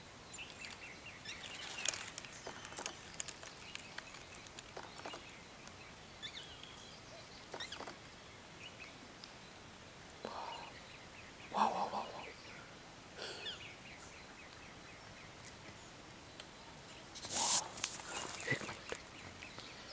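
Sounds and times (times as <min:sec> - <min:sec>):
faint bird chirps: 0:10.2 - 0:19.9.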